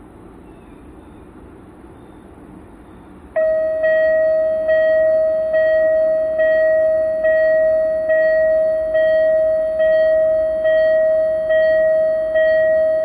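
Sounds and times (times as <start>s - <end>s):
level crossing warning bell: 3.4s - 13.0s.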